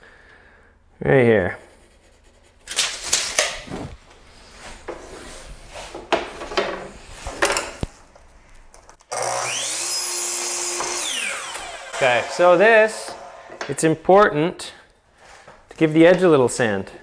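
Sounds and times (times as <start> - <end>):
miter saw cutting wood: 9.1 - 13.7.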